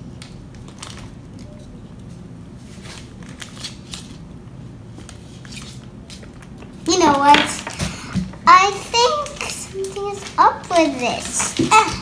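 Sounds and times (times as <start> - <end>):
plastic packets crinkling: 0.2 - 1.5.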